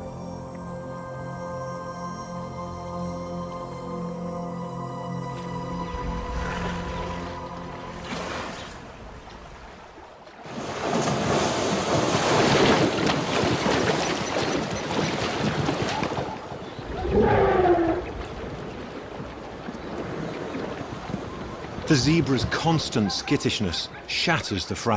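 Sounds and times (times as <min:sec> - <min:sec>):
animals splashing through water: 0:06.0 - 0:24.1.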